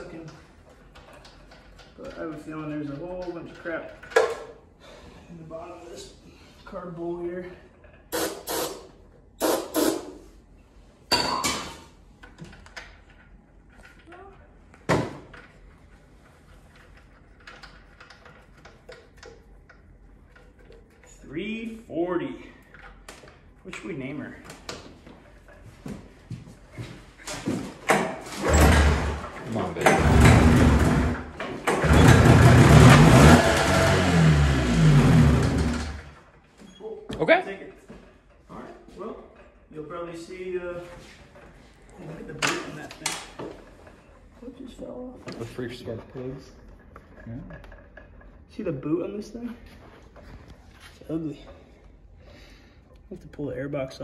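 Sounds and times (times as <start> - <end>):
two-stroke engine starting: 28.4 - 36.2.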